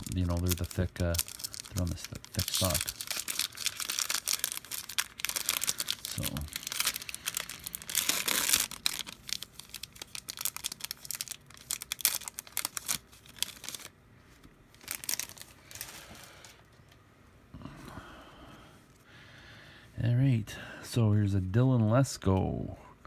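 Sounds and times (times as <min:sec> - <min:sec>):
wrapper tearing and crinkling: 0:00.0 - 0:13.9, 0:14.7 - 0:16.5.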